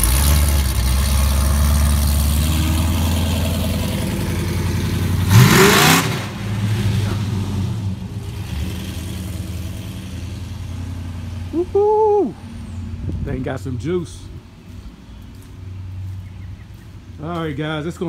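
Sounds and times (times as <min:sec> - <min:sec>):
car engine revving: 0:00.0 - 0:11.7.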